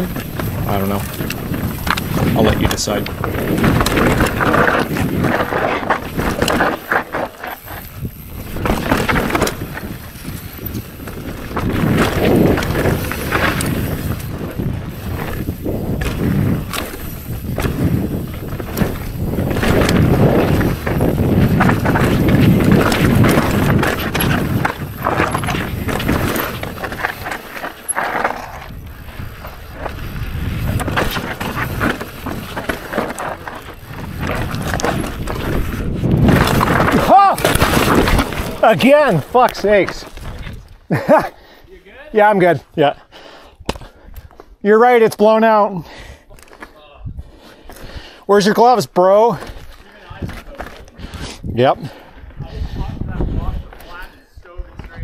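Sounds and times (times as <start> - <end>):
bike knocking and clattering: 0.0 - 41.2
bike tyres on dirt and stone: 0.0 - 55.0.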